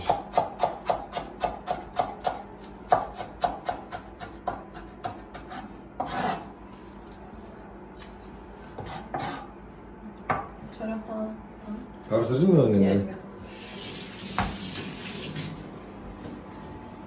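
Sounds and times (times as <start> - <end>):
food scraping strokes: 4.1 - 9.6.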